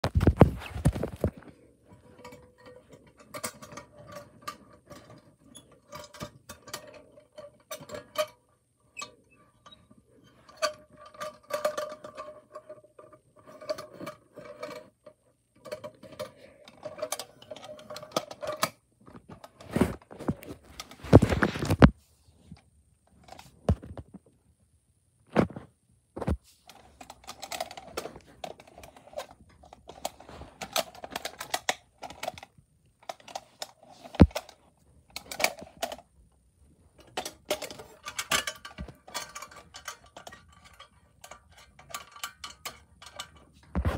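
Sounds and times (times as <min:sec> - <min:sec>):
toys knocking and rubbing: 0:00.0 - 0:08.2, 0:09.5 - 0:22.0, 0:26.2 - 0:36.0, 0:43.1 - 0:43.9
toy vehicles clicking and rattling: 0:00.3 - 0:21.8, 0:26.6 - 0:36.2, 0:36.9 - 0:43.8.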